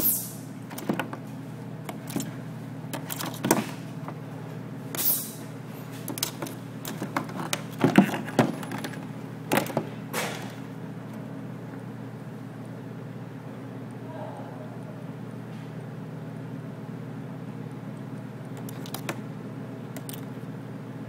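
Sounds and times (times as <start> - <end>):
steady low hum: 0.0 - 21.0
crab claws scraping plastic: 6.2 - 9.8.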